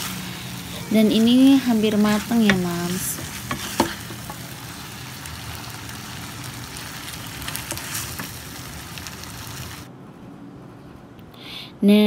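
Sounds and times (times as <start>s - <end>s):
food sizzling in wok: 0.0s - 9.9s
spatula stirring and tapping: 1.7s - 4.6s, 7.4s - 8.4s.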